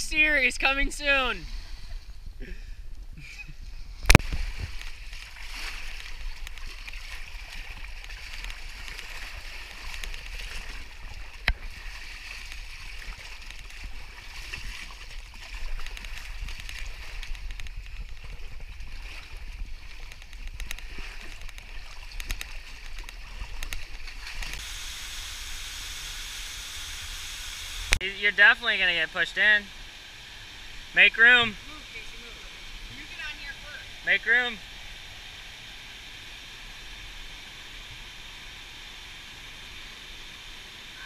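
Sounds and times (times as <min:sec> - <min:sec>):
waves lapping against rock: 0:04.1 - 0:24.7.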